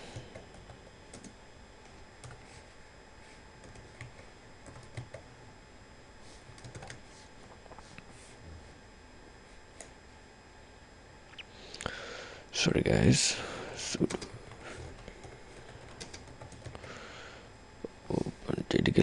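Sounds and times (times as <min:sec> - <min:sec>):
faint keyboard typing: 0:00.1 - 0:02.5, 0:03.6 - 0:05.3, 0:06.4 - 0:07.8, 0:13.9 - 0:16.9.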